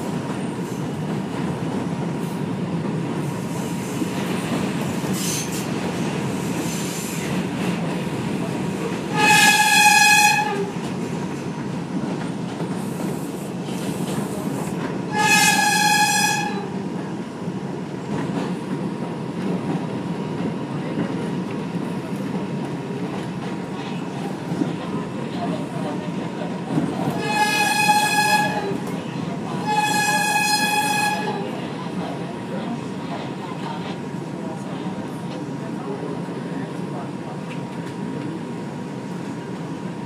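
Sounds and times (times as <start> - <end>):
train wheels rumbling on rail: 0.0 - 40.0
train horn blasts: 9.1 - 10.7, 15.1 - 16.8, 27.2 - 28.8, 29.6 - 31.5.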